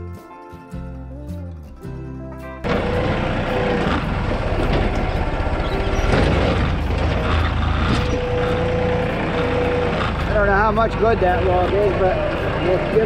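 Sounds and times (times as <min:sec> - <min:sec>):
tractor engine running: 0:02.6 - 0:13.0.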